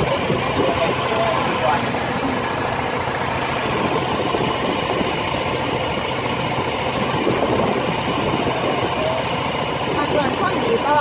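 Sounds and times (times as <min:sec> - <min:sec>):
small boat engine running: 0:00.0 - 0:11.0.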